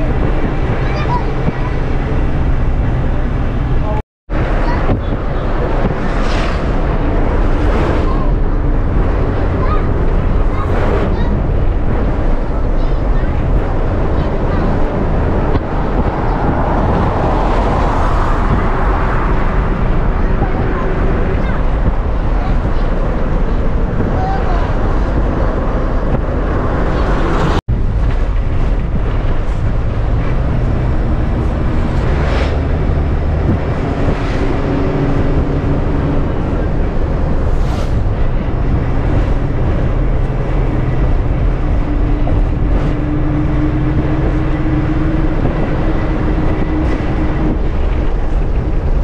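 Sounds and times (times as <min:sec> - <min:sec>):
bus engine running: 0:00.0 - 0:49.0
road noise: 0:00.0 - 0:49.0.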